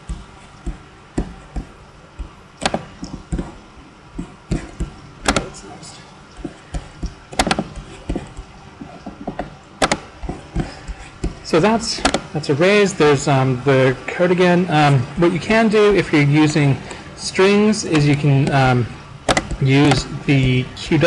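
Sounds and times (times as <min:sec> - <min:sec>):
keyboard taps: 0:00.1 - 0:03.6, 0:06.4 - 0:08.5, 0:09.1 - 0:11.4.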